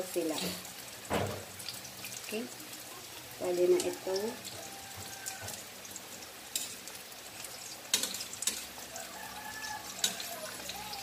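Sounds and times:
tofu sizzling in oil: 0:00.0 - 0:11.0
metal tongs clicking on pan: 0:03.6 - 0:04.0, 0:06.5 - 0:08.8, 0:09.9 - 0:11.0.

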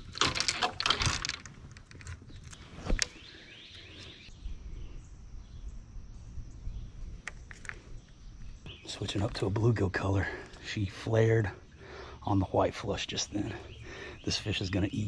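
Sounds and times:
fishing rods clicking and knocking: 0:00.0 - 0:03.2.

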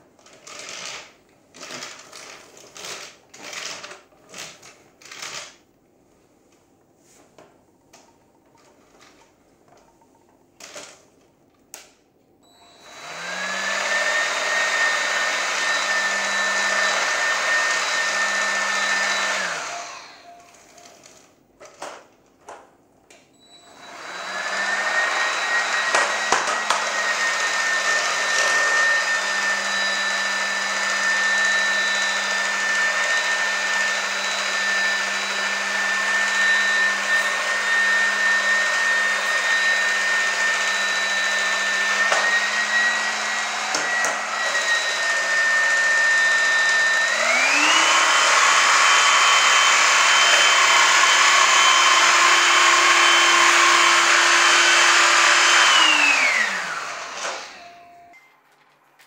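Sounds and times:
vacuum cleaner motor whine: 0:12.4 - 0:21.8, 0:23.3 - 0:58.2.

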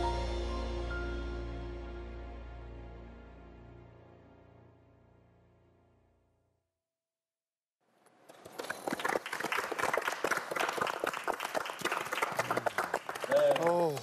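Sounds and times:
applause: 0:08.2 - 0:14.0.

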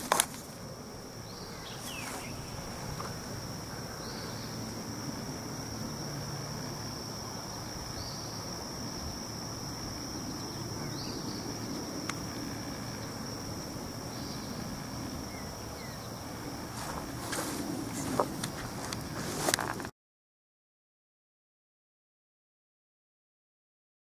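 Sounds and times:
rustles and knocks: 0:00.0 - 0:00.6
insects trilling: 0:00.0 - 0:19.9.

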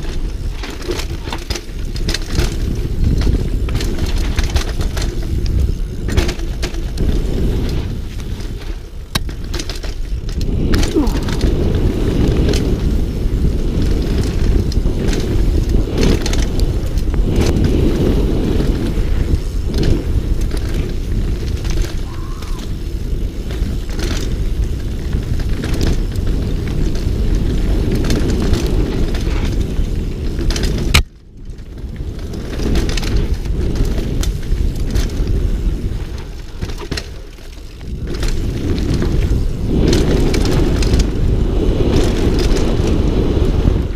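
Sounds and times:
bike knocks and rattles: 0:00.0 - 0:43.9
bike tyres on dirt: 0:00.0 - 0:43.9
wind rushing over microphone: 0:00.0 - 0:43.9.

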